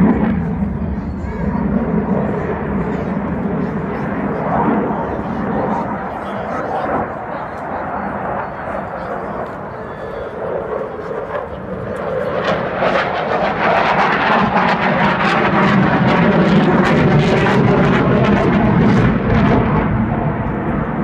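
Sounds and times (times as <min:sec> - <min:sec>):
loud rushing jet noise: 0:10.5 - 0:21.0.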